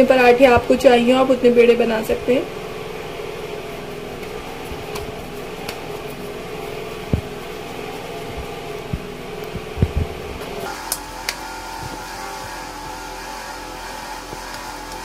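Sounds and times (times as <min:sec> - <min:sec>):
mechanical hum: 0:00.0 - 0:15.0
soft low thumps: 0:07.0 - 0:10.6.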